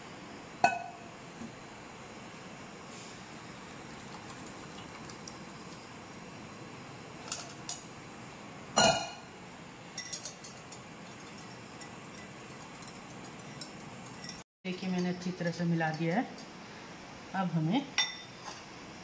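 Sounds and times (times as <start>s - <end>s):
whisk clinking on glass bowl: 10.0s - 14.4s.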